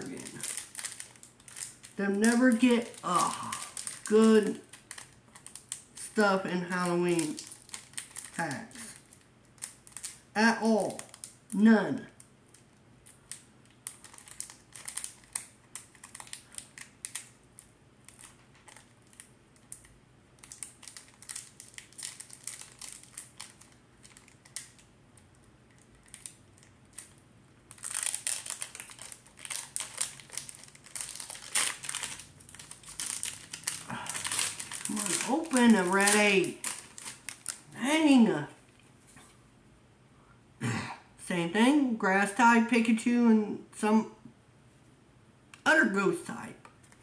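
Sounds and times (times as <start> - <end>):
wrapper crinkling and tearing: 0.0 - 37.8.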